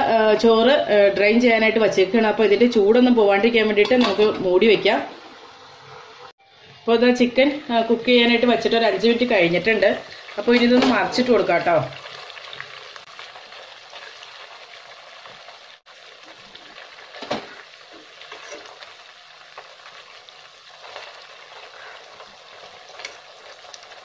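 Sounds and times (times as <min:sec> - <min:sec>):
chicken sizzling in oil: 0:05.1 - 0:24.0.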